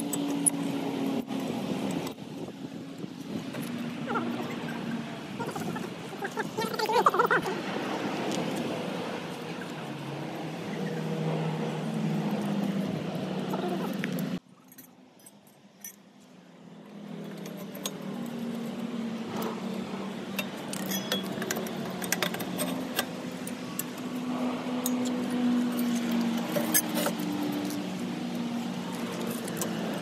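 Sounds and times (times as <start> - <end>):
small metal clicks and clinks: 14.0 - 16.0, 20.3 - 24.2.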